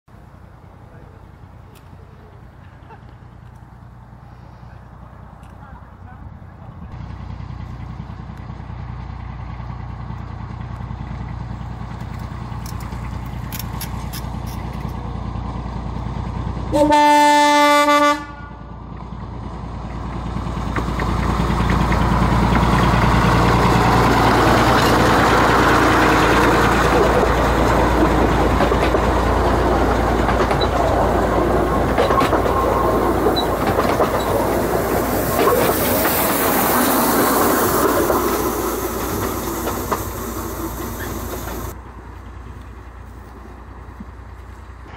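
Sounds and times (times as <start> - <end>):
locomotive engine running: 0.1 - 44.9
train wheels clattering on track: 7.0 - 17.4, 18.6 - 44.9
locomotive air horn: 16.7 - 18.8.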